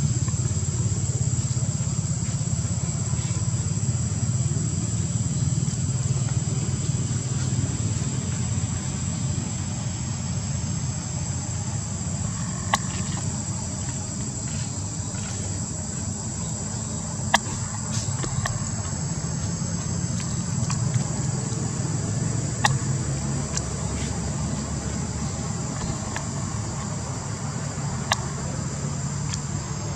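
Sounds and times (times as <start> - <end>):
sharp clicks: 17.3 - 21.7, 22.5 - 24.3, 25.6 - 27.0.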